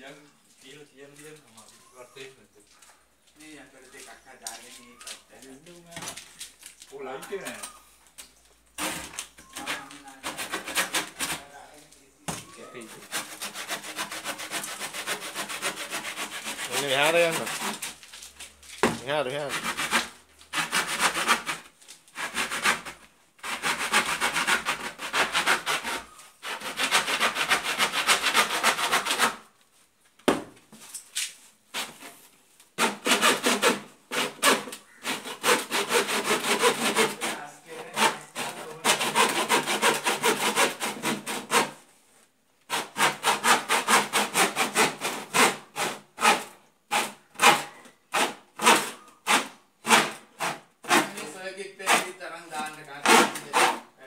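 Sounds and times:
hand saw cutting metal: 8.8s - 11.5s, 12.8s - 18.0s, 19.0s - 29.4s, 32.8s - 41.8s, 42.7s - 53.9s.

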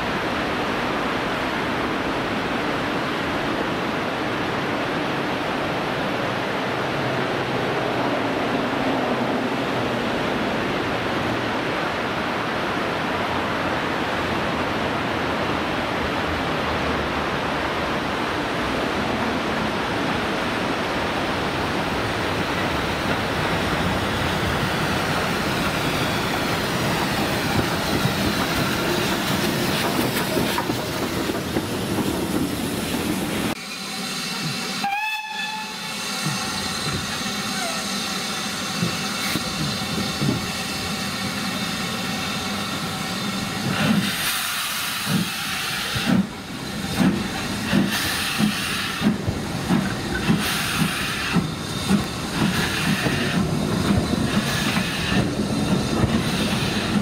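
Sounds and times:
steam train rushing past: 0.0s - 57.0s
steam locomotive whistle: 33.6s - 38.3s.

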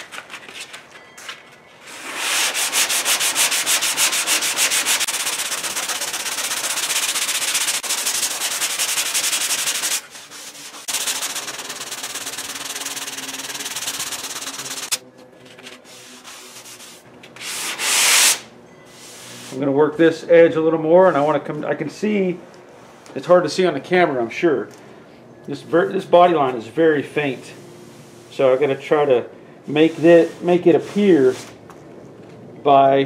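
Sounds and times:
sandpaper scraping on body filler: 1.8s - 15.0s, 15.7s - 18.4s, 29.7s - 31.6s.

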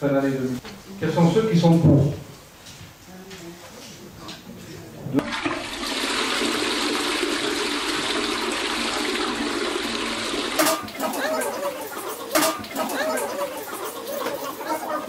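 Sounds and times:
toilet flushing: 5.1s - 15.0s.

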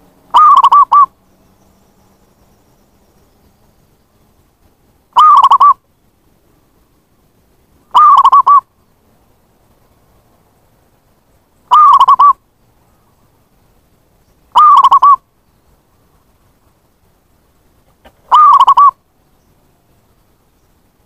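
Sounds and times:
dove cooing: 0.3s - 1.1s, 5.2s - 5.8s, 7.9s - 8.6s, 11.7s - 12.4s, 14.5s - 15.2s, 18.0s - 19.0s.

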